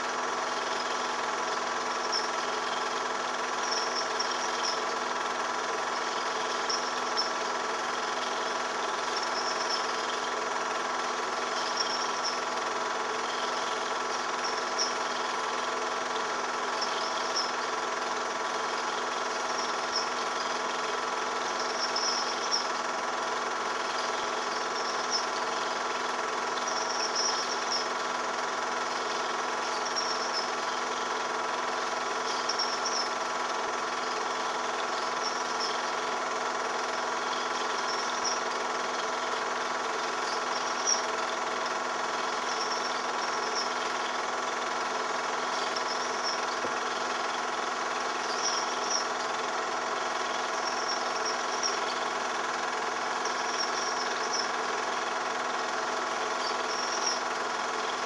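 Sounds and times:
film projector whirring: 0:00.0 - 0:58.0
faint high chirp: 0:11.5 - 0:12.4, 0:26.6 - 0:27.9, 0:32.2 - 0:33.2, 0:42.3 - 0:43.8, 0:48.2 - 0:49.1, 0:53.2 - 0:54.5.

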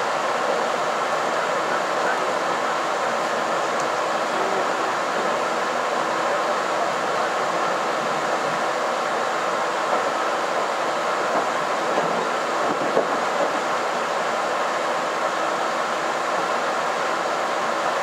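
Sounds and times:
train cabin running noise: 0:00.0 - 0:18.0
wheels clicking over rail joints: 0:11.3 - 0:13.6.

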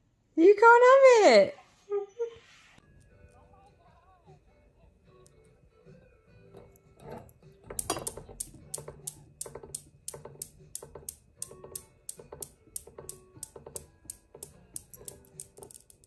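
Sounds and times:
steel balls clacking: 0:07.0 - 0:16.0.

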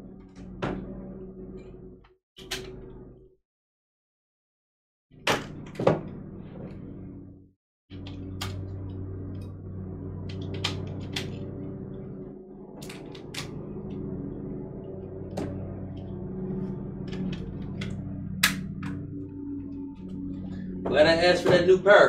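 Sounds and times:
low background music: 0:08.2 - 0:22.0.

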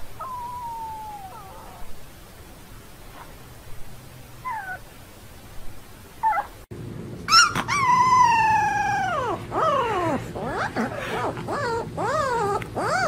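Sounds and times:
puppy squeaking: 0:07.3 - 0:13.0.

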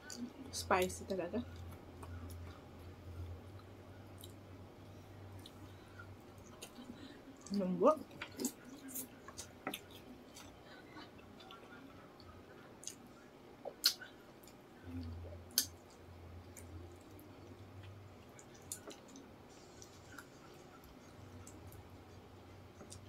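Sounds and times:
people chewing and sucking: 0:01.5 - 0:23.0
sharp mouth clicks: 0:13.8 - 0:14.0.

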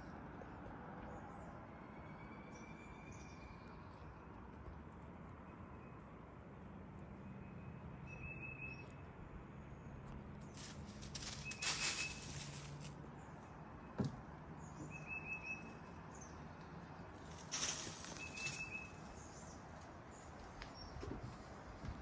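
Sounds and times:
faint outdoor background noise: 0:00.0 - 0:22.0
rustling: 0:10.5 - 0:13.0, 0:17.2 - 0:19.0.

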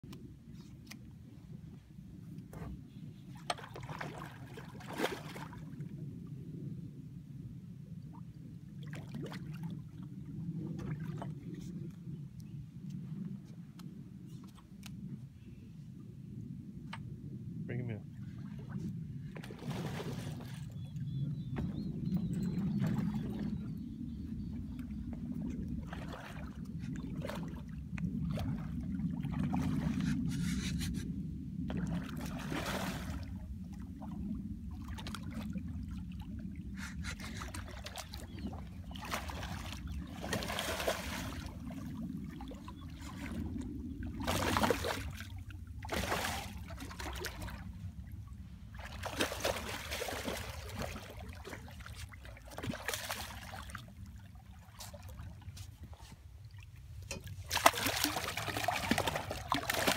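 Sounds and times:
steady low rumble: 0:00.0 - 0:52.6
fish thrashing and splashing: 0:36.8 - 0:42.6, 0:44.2 - 0:47.6, 0:48.8 - 0:53.8, 0:57.3 - 0:59.9.

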